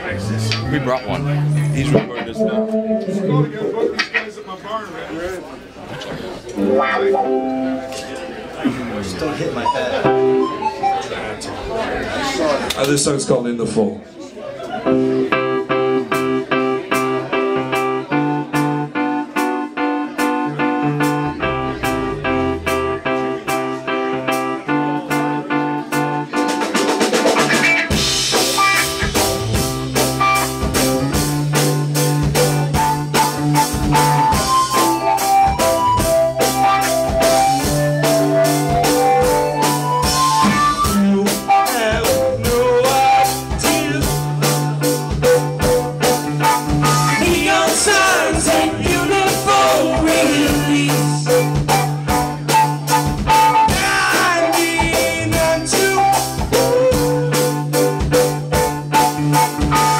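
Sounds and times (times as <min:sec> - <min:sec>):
live rock band playing: 0:00.0 - 0:04.4, 0:06.5 - 0:12.7, 0:14.7 - 0:59.9
melodic lead line: 0:00.9 - 0:03.9, 0:06.6 - 0:08.6, 0:20.3 - 0:24.6, 0:27.4 - 0:59.9
drum kit fill and beat: 0:15.0 - 0:59.9.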